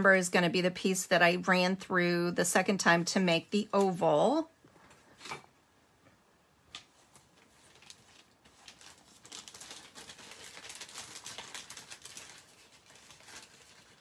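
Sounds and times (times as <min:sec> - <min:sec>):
paper rustling and crinkling: 0:06.7 - 0:14.0.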